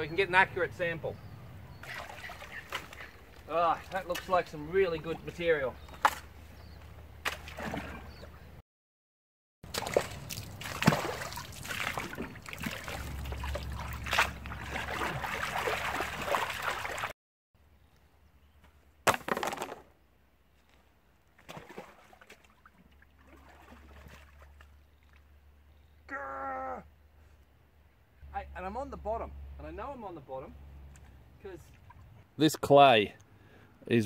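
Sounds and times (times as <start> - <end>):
water sloshing: 1.8 - 6.4, 7.2 - 8.5, 9.6 - 17.1, 21.3 - 25.4, 31.6 - 32.3.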